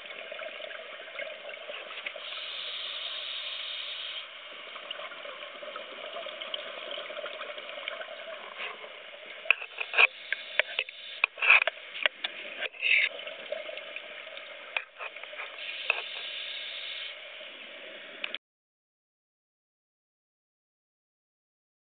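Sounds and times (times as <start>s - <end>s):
underwater watery hiss: 2.0s - 4.6s, 9.7s - 13.1s, 15.4s - 18.3s.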